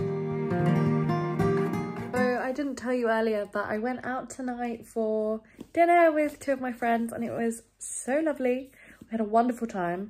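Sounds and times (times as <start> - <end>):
plucked acoustic guitar music: 0.0 - 2.6.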